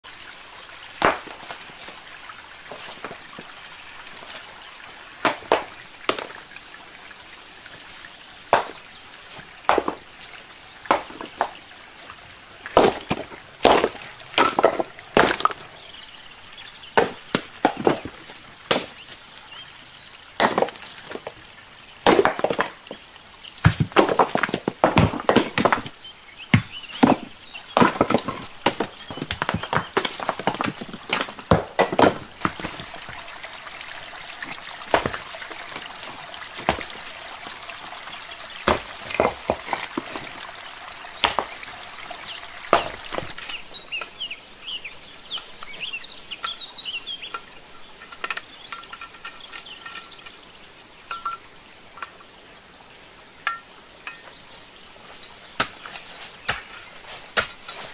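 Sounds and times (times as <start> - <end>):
rocks knocking together: 1.0 - 2.0, 2.7 - 3.5, 5.2 - 6.5, 8.5 - 11.7, 12.6 - 15.8, 17.0 - 19.2, 20.4 - 21.4, 22.0 - 23.0, 23.6 - 33.4, 34.1 - 44.1, 55.6 - 57.9
bird chirping: 25.9 - 30.1, 41.1 - 51.5.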